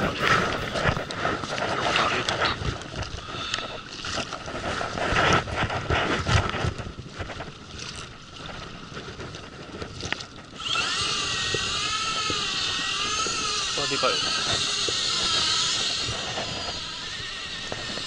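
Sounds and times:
water lapping against boat hull: 0:00.0 - 0:18.0
wind buffeting microphone: 0:00.0 - 0:18.0
knocks of fishing rod and reel: 0:10.0 - 0:18.0.

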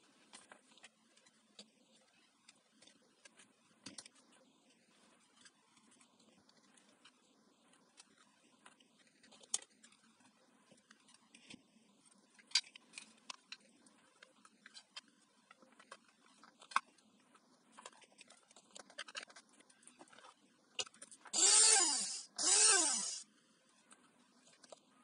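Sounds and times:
plastic parts clicking and knocking: 0:17.7 - 0:21.4
hand blender bursts: 0:21.4 - 0:23.2.

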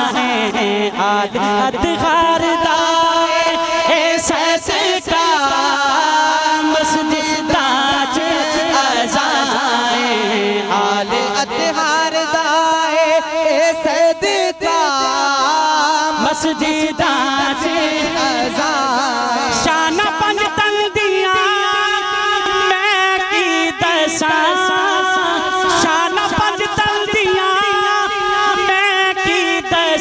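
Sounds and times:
wordless vocal melody: 0:00.0 - 0:30.0.

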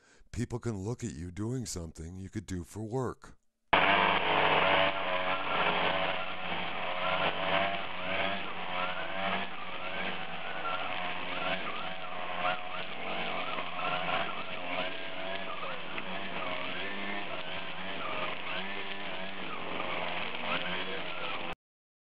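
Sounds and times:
string trimmer cutting grass: 0:03.8 - 0:21.6.

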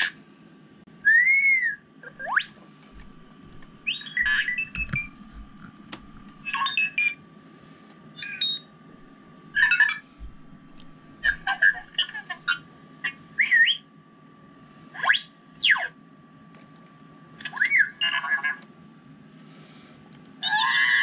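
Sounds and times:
chirps and trills: 0:03.7 - 0:05.4
robot beeps and whistles: 0:03.8 - 0:05.2.

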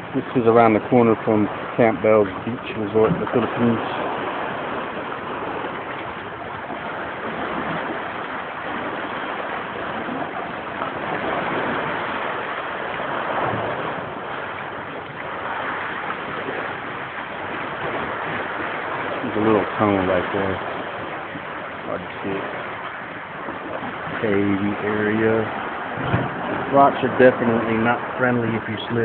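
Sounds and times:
ocean surf washing in: 0:00.0 - 0:29.0.

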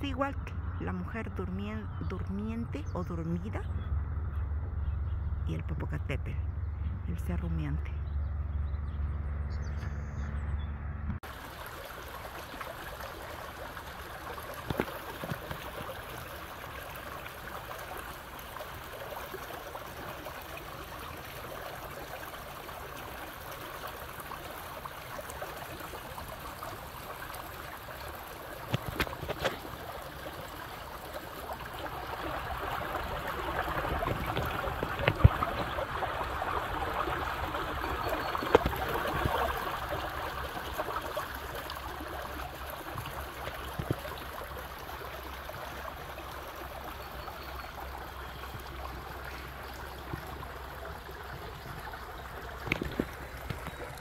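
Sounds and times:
stream trickling: 0:11.2 - 0:54.0.

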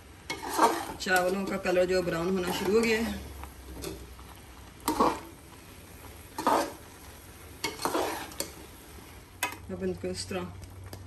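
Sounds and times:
faint sizzle: 0:00.0 - 0:11.0
metal spoon scraping wet rice: 0:00.3 - 0:01.7, 0:06.4 - 0:06.8, 0:07.6 - 0:08.6.

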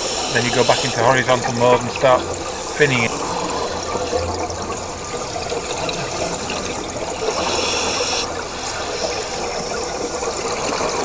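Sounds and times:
underwater bubbling of exhaled breath: 0:00.0 - 0:11.0.

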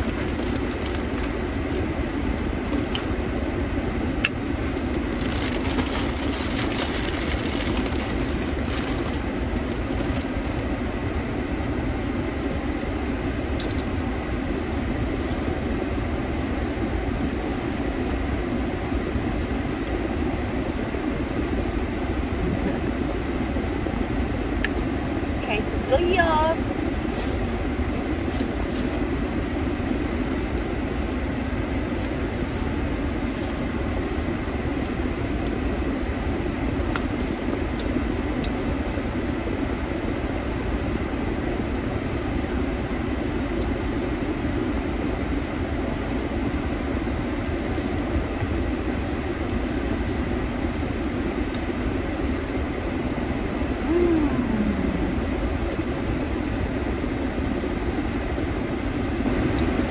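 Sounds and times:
road and engine rumble in car: 0:00.0 - 0:59.9
short falling whine: 0:53.7 - 0:55.6.

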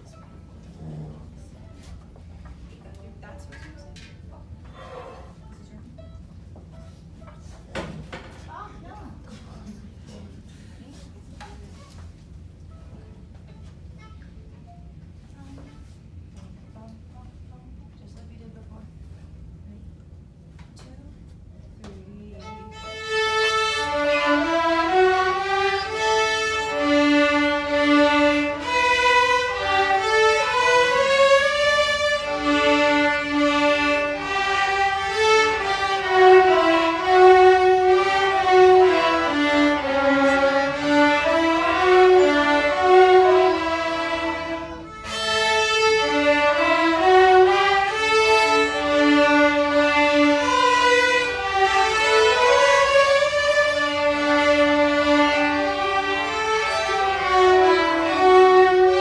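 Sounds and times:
string ensemble playing: 0:22.3 - 0:59.0.

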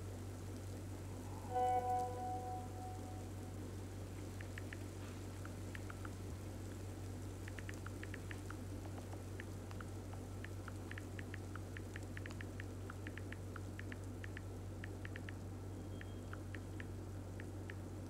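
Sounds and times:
low hum: 0:00.0 - 0:18.0
phone keyboard ticks: 0:04.4 - 0:06.2, 0:07.4 - 0:15.4, 0:16.0 - 0:17.8.

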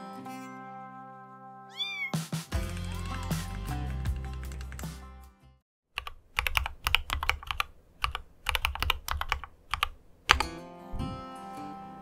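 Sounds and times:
mechanical keyboard typing: 0:04.2 - 0:04.9, 0:06.0 - 0:10.5.

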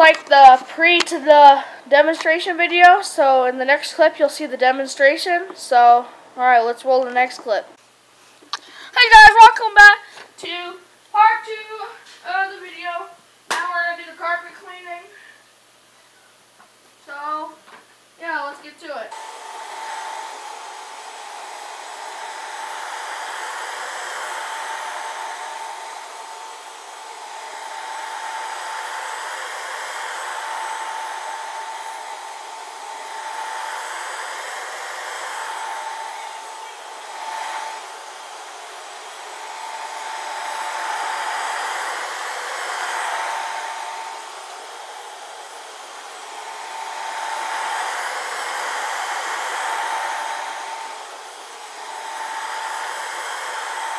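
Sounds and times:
carpet cleaner motor whine: 0:19.1 - 0:53.9
suction hiss: 0:19.1 - 0:53.9.

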